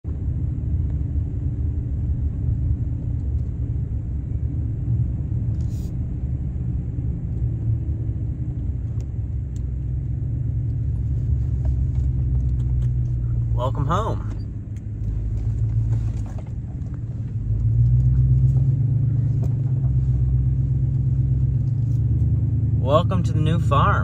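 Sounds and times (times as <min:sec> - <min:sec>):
vehicle cabin rumble: 0:00.0 - 0:24.0.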